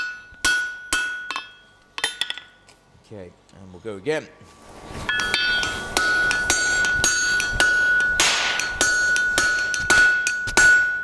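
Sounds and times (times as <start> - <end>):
anvil ringing: 0.0 - 2.7, 5.1 - 11.0
hammer blows on hot steel: 5.0 - 11.0.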